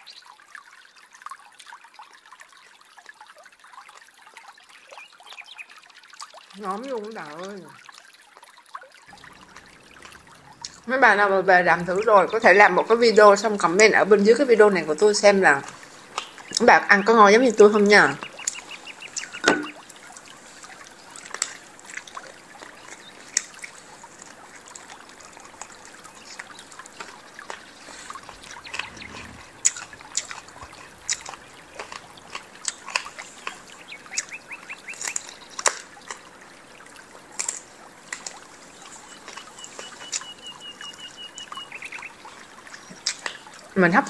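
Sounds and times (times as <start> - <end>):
wet chewing and sucking: 9.1 - 10.9, 15.6 - 16.7, 18.2 - 36.3, 37.3 - 40.6, 42.7 - 43.5.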